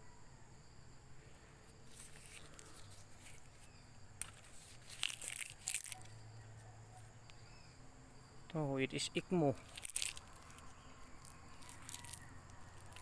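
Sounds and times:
insects droning: 0.0s - 13.0s
dry leaves rustling and crackling: 1.9s - 6.1s, 9.4s - 13.0s.

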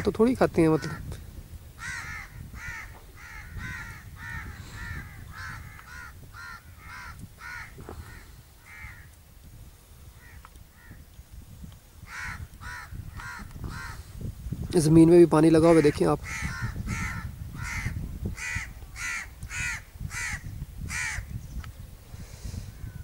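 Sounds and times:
crows cawing: 0.7s - 1.1s, 1.8s - 9.1s, 10.2s - 11.0s, 12.1s - 14.1s, 15.6s - 21.3s.

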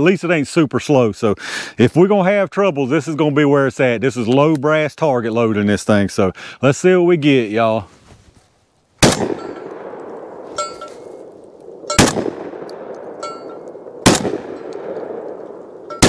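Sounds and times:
metallic clangs of steel target: 9.0s - 9.8s, 10.5s - 16.0s
shotgun shots echoing: 9.0s - 16.0s.

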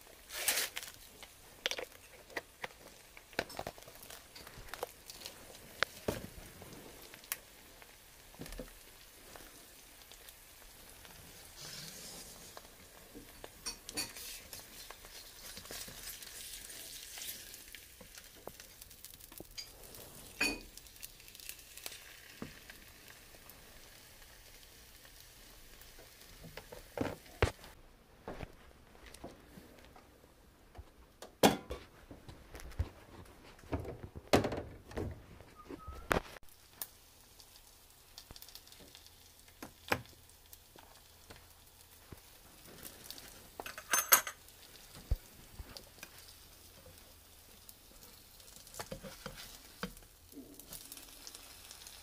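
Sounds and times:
egg sizzling in a pan: 0.0s - 27.8s, 36.2s - 52.0s
spatula scraping a pan: 11.0s - 17.7s, 48.8s - 50.0s.

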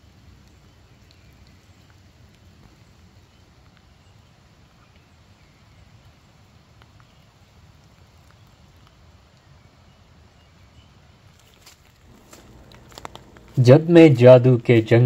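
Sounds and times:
rain dripping and pattering: 0.0s - 15.0s
steady low rumble: 12.0s - 15.0s.

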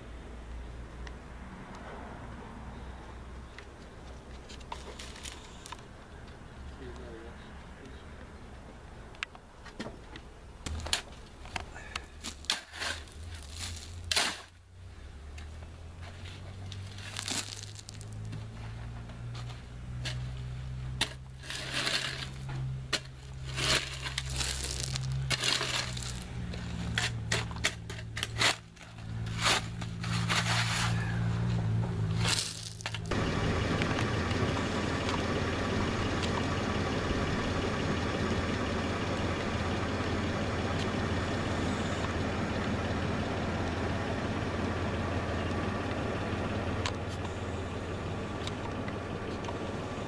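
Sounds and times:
shovel scraping dirt and gravel: 4.5s - 5.8s, 10.7s - 14.6s, 16.0s - 33.4s.

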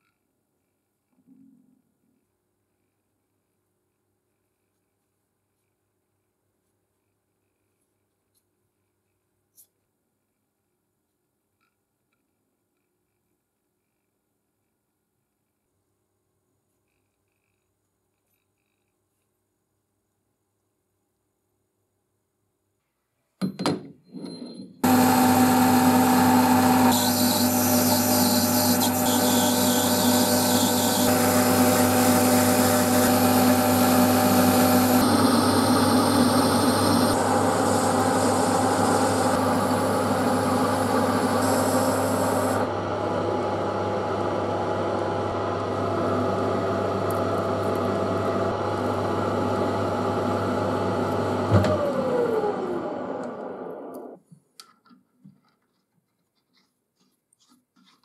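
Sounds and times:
tool cutting steel: 24.8s - 42.7s
metal lathe running: 24.8s - 42.8s.

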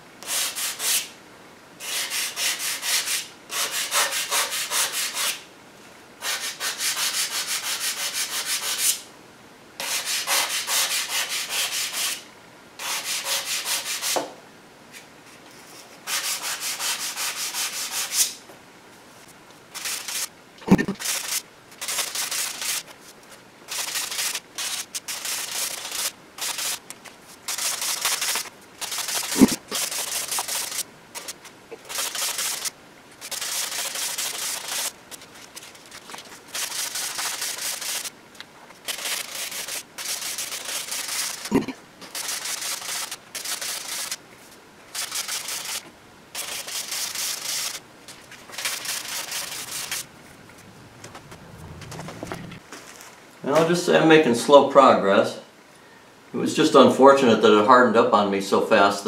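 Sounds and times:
sandpaper rasping strokes: 0.2s - 1.1s, 1.8s - 5.4s, 6.2s - 9.0s, 9.8s - 12.2s, 12.8s - 14.2s, 15.6s - 18.4s, 19.7s - 20.3s, 21.0s - 38.1s, 38.8s - 44.2s, 44.9s - 45.8s, 46.4s - 47.8s, 48.4s - 50.0s.

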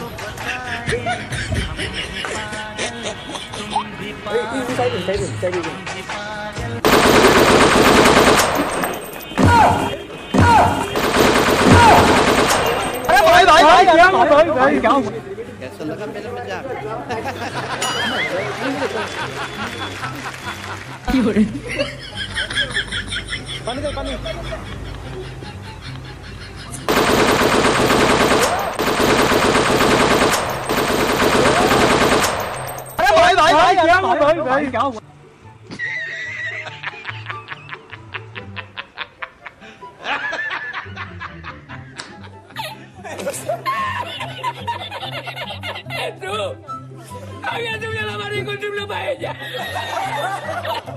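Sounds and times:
heavy gunshots with falling whine: 6.8s - 9.7s, 10.4s - 13.2s, 26.9s - 33.0s
machine-gun fire: 6.8s - 13.4s, 26.9s - 33.0s.

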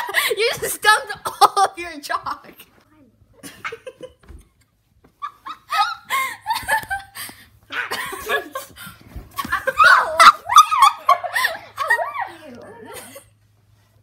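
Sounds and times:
girls laughing: 0.0s - 1.8s, 3.4s - 13.4s.

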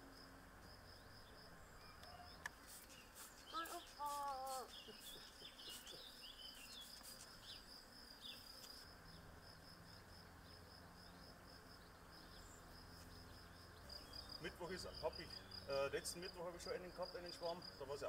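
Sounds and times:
insect trill: 0.0s - 18.0s
bird chirps: 1.0s - 9.3s.

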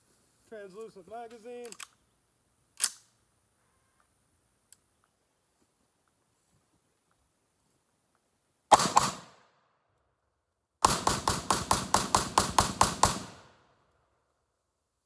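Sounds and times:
rifle shots: 8.7s - 9.4s, 10.8s - 13.7s.

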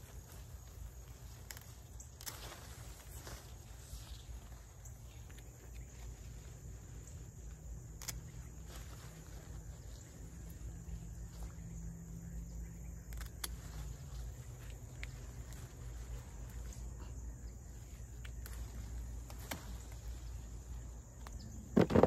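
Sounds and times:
insects chirring: 0.0s - 22.0s
pruners snipping: 0.8s - 3.6s, 7.4s - 8.9s, 13.0s - 16.9s, 18.1s - 20.4s.

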